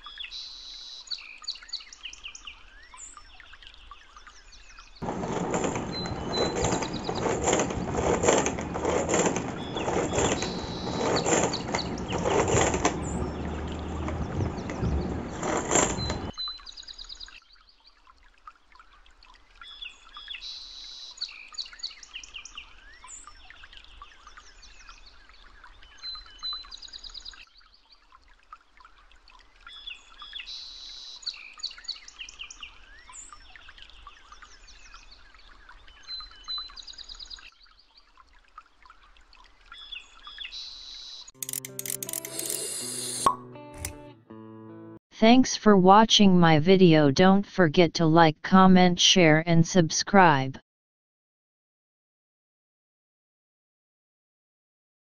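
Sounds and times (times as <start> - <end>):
songbirds chirping: 0.2 - 16.3
plastic chopper handling noise: 5.0 - 13.0.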